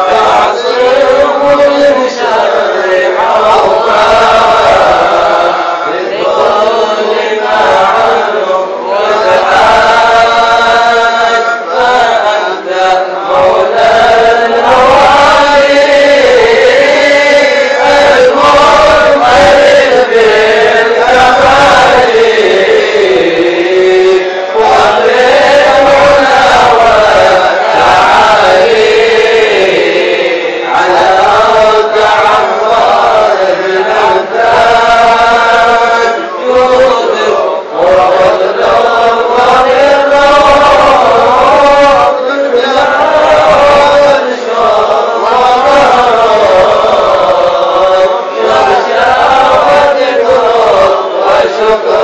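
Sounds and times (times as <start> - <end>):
men chanting in unison: 0.0 - 52.0.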